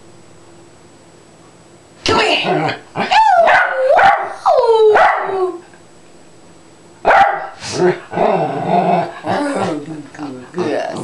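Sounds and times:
dog howling barks: 3.1 - 5.6, 7.1 - 7.6.

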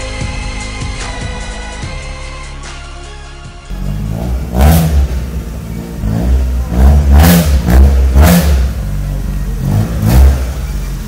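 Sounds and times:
car engine revving at idle: 3.7 - 11.0.

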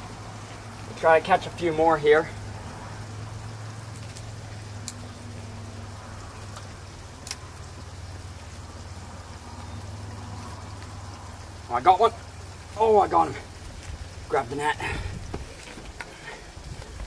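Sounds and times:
even hiss: 0.0 - 17.0
faint sharp clicks: 4.0 - 5.1.

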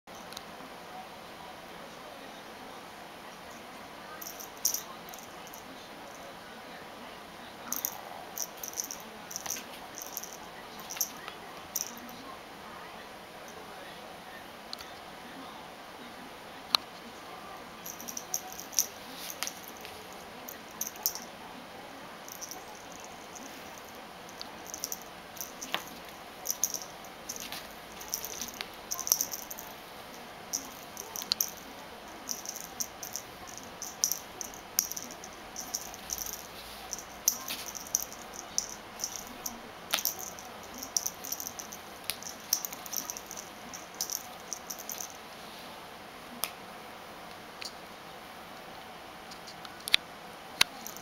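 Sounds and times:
paws and toy on floor mat: 35.6 - 45.6.

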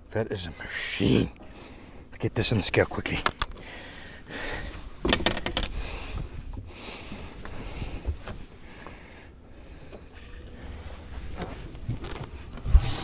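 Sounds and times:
rustling: 10.2 - 13.0.

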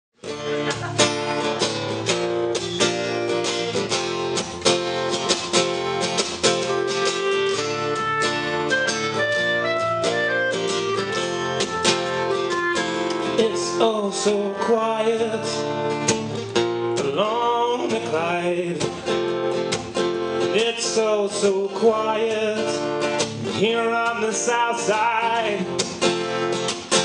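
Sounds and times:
electric bass guitar: 0.2 - 24.0
strummed acoustic guitars: 0.2 - 27.0
clarinet playing held notes: 6.8 - 14.7.

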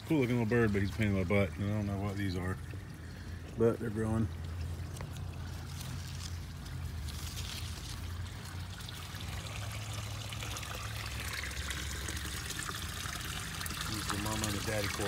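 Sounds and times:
low steady hum: 0.0 - 15.0
water pouring into pond: 0.0 - 15.0.

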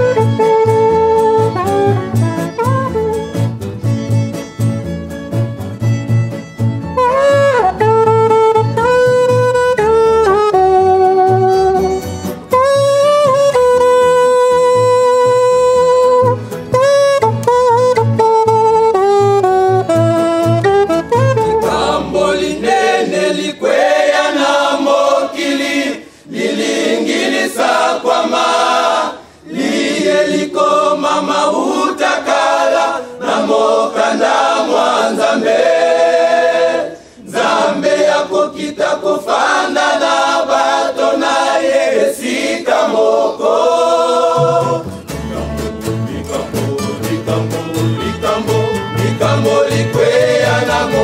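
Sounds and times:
low instrumental backing: 0.0 - 22.3
men singing a hymn: 21.6 - 51.0.

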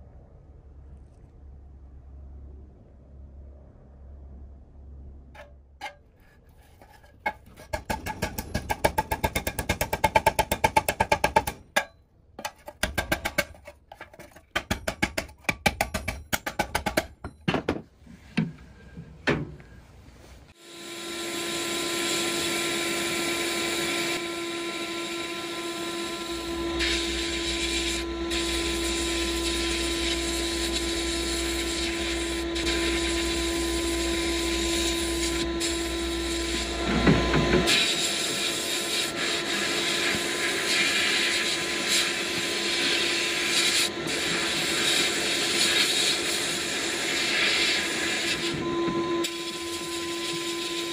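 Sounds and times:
constant machine hum: 0.0 - 50.9
blasting air and grit hissing: 26.7 - 48.5.

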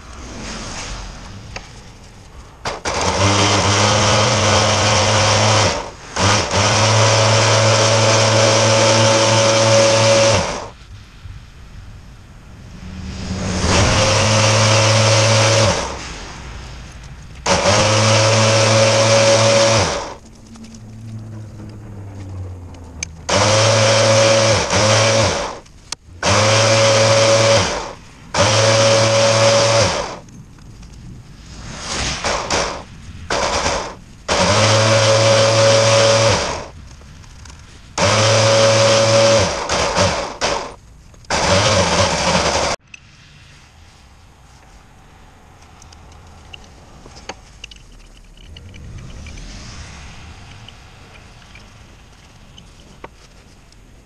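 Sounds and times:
electric winch motor whining: 2.7 - 10.7, 13.6 - 16.0, 17.4 - 30.2, 32.3 - 36.7, 38.0 - 42.8.

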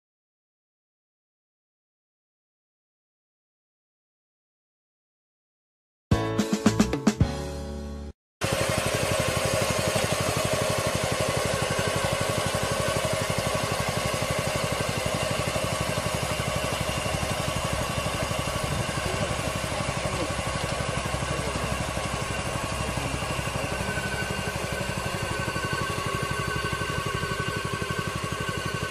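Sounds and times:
harvesting machine engine: 8.4 - 28.9
steady machine whine: 8.4 - 28.9.

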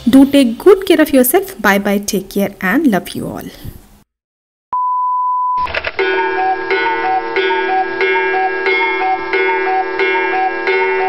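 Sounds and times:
bell-like tune: 6.0 - 11.0.

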